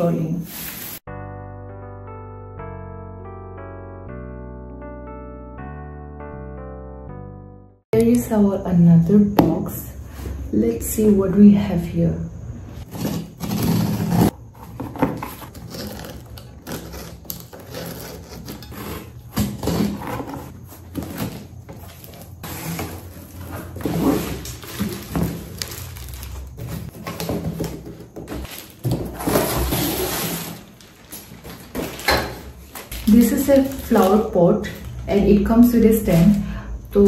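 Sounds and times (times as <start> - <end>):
cardboard flaps scraping: 12.8 - 34.3
packing tape tearing: 12.9 - 27.8, 28.4 - 35.0
plastic wrap crinkling: 19.8 - 35.2.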